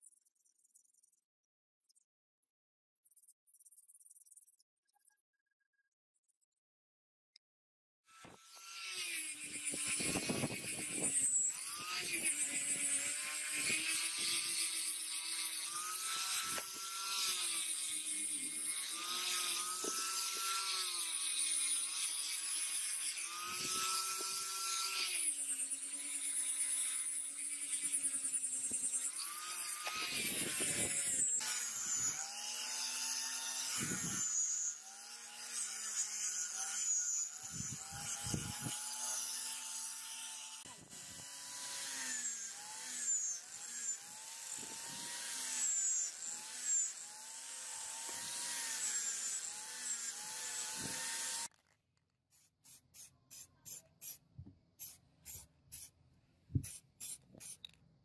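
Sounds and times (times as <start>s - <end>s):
rotary tool motor whine: 8.1s - 51.8s.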